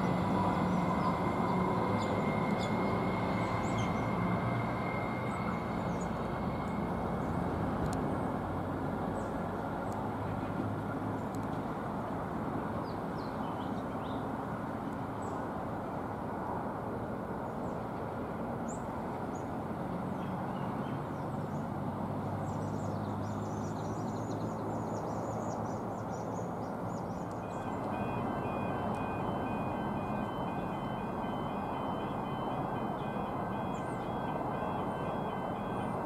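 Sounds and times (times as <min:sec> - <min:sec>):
distant electric train rumble: 0:00.0 - 0:12.8, 0:14.4 - 0:36.0
faint high pulsing tones: 0:27.2 - 0:36.0.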